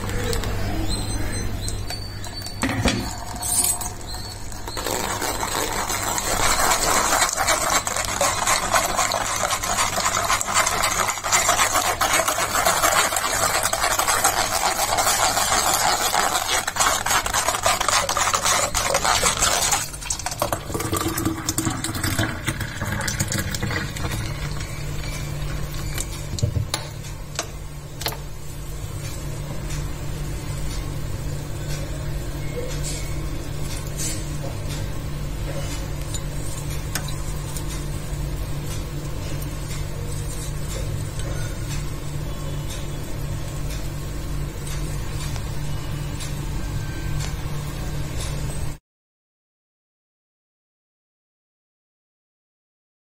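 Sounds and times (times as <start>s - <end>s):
spoon scraping metal strainer: 2.1s - 22.2s.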